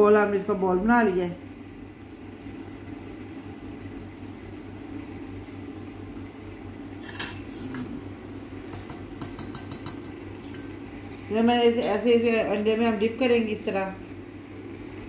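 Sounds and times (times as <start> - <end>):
steady low hum: 0.0 - 15.0
fork beating egg in bowl: 8.7 - 10.7.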